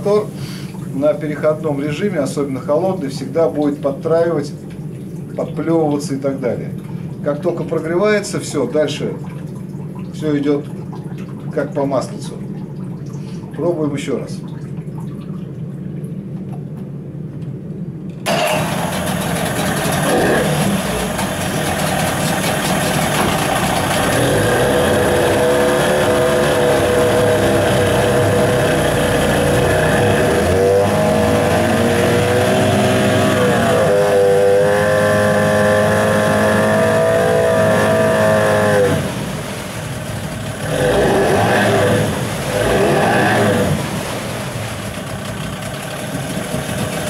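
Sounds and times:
outboard engine revving: 18.2 - 47.0.

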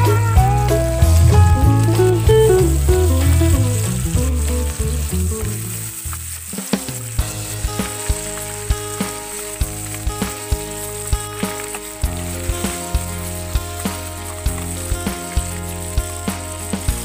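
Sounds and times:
background music: 0.0 - 17.0
fish sizzling in oil: 0.0 - 17.0.

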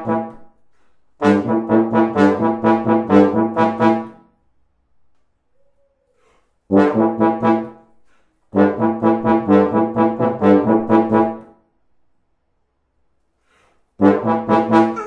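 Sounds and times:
tuba and trombone playing: 0.0 - 0.5, 1.2 - 4.2, 6.7 - 7.9, 8.5 - 11.4, 14.0 - 15.0.

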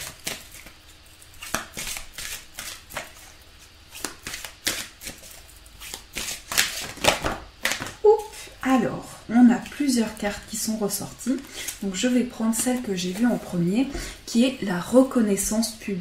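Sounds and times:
cards being shuffled: 0.0 - 8.0.

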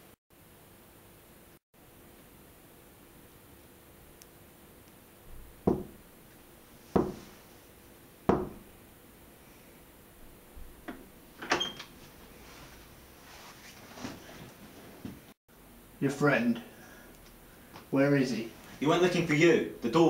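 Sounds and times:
knocks on wooden door: 5.6 - 6.0, 7.0 - 7.2, 8.3 - 8.6.

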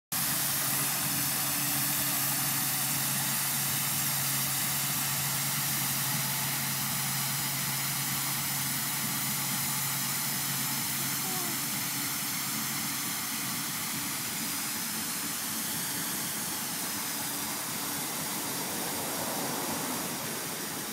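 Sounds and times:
diesel tractor engine humming: 0.2 - 20.9
sweeper hissing: 13.8 - 20.9.

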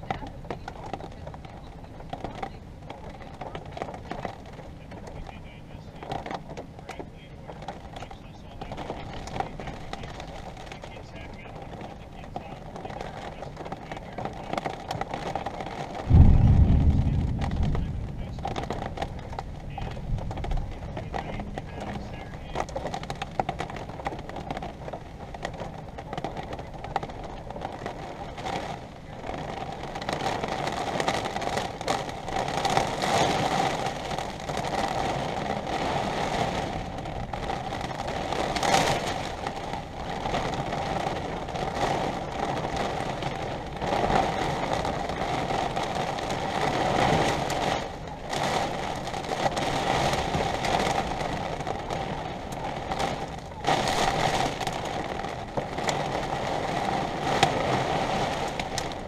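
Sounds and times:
rain patter: 0.0 - 59.0
wind gusts: 14.8 - 59.0.

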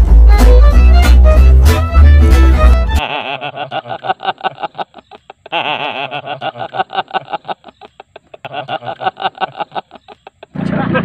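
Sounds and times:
man laughing hard: 3.0 - 10.6.

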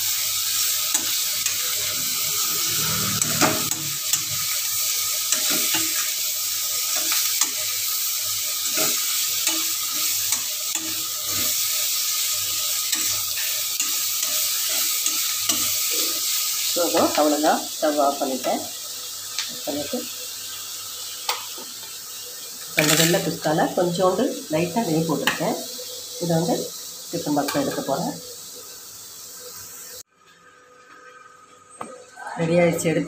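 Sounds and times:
vegetables sizzling in oil: 0.0 - 33.0
spoon scraping metal wok: 0.6 - 7.7, 8.6 - 17.4.

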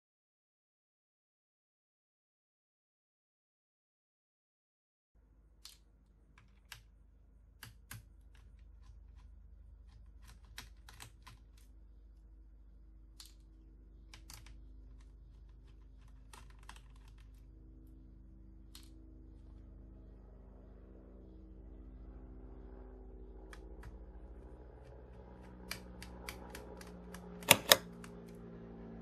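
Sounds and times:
low steady hum: 5.2 - 29.0
clicks and taps of handling: 25.4 - 28.3.

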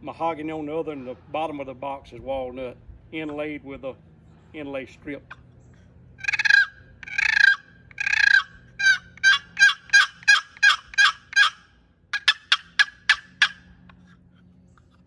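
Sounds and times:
turkey box call yelps: 6.2 - 13.8.

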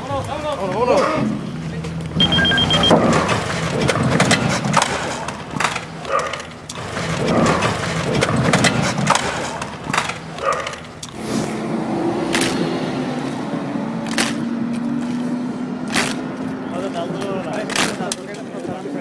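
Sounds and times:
rattling road noise: 0.0 - 19.0
knocks and clatter: 2.9 - 11.2, 14.0 - 18.9.

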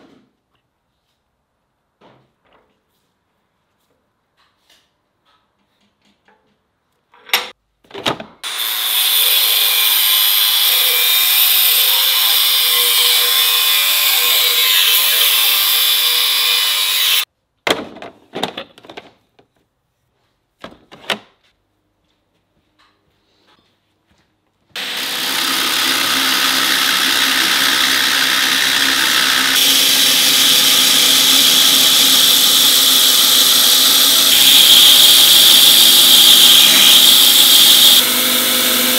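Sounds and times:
belt grinder grinding drill bit: 8.5 - 17.2, 24.8 - 38.9
power tool grinding steel: 8.5 - 17.3, 24.8 - 38.9.

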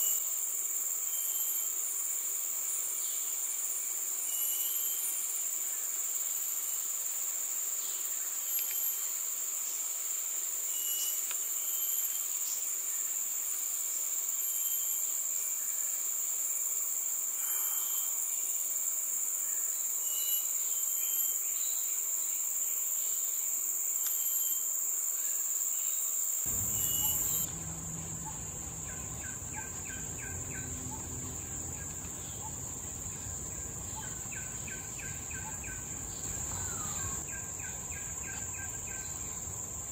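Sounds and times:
insects droning: 0.0 - 39.9
low rumble: 26.5 - 37.2.

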